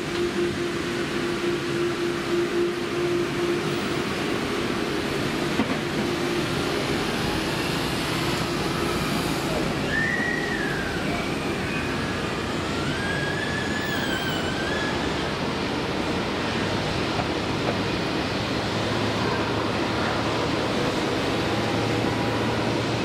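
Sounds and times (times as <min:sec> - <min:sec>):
airliner jet roar: 0:00.0 - 0:23.0
thin wavering whistles: 0:09.8 - 0:12.2.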